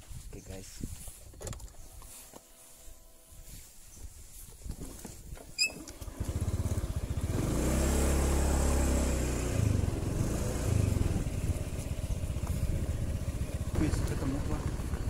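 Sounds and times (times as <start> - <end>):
scooter engine starting and revving: 5.4 - 15.0.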